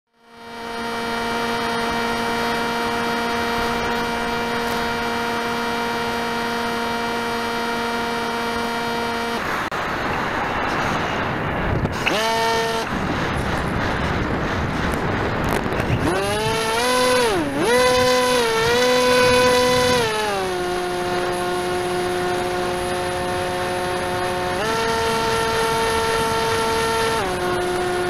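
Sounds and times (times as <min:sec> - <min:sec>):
model airplane motor whine: 0:00.1 - 0:28.0
rush of air: 0:09.4 - 0:17.7.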